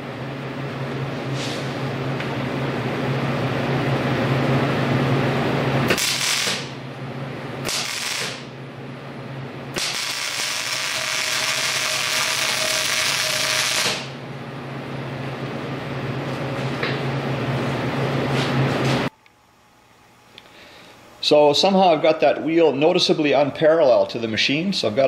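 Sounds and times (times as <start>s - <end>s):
arc welding hiss: 5.9s - 6.8s, 7.6s - 8.5s, 9.8s - 14.1s.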